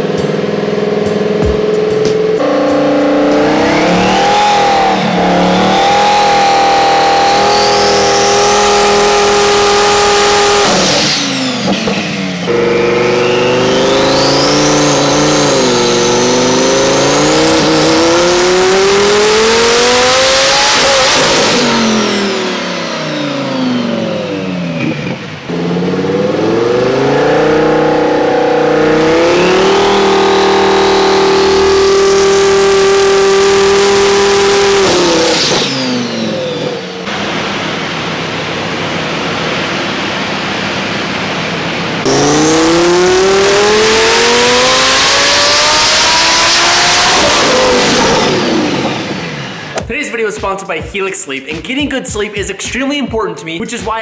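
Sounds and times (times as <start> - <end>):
car engine revving on dyno: 0.0 - 49.9
high turbo whine: 0.0 - 50.8.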